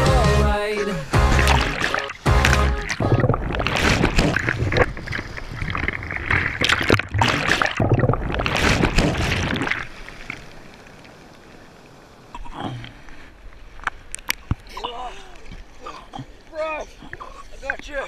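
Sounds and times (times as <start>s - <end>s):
sudden water splashes: 1.2s - 11.4s.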